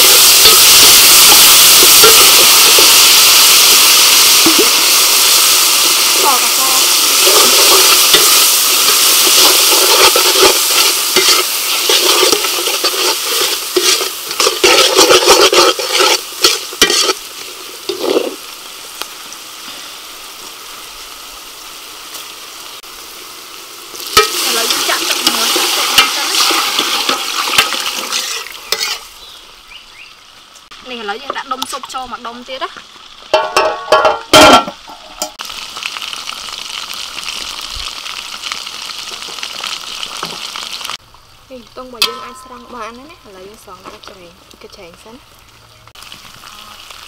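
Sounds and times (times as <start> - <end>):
food sizzling in hot oil: 0.0 - 47.0
metal ladle stirring and scraping: 7.0 - 18.4, 24.1 - 29.1.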